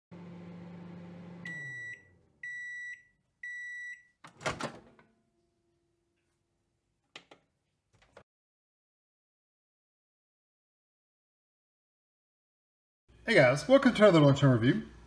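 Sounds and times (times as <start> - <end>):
microwave oven humming: 0.1 - 3.7
microwave beeps: 1.1 - 4.2.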